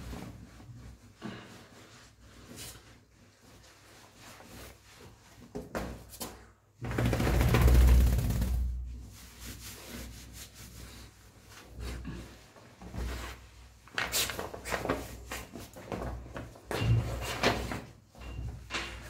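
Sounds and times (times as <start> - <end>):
towel rubbing dog's coat: 0.0 - 5.5, 8.4 - 13.5.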